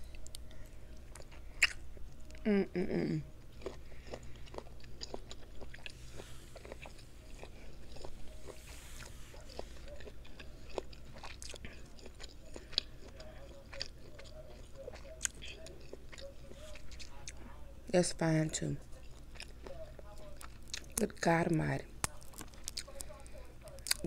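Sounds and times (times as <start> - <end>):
chewing and biting food: 0.0 - 2.5, 3.4 - 17.6, 18.8 - 24.0
person humming: 2.4 - 3.3.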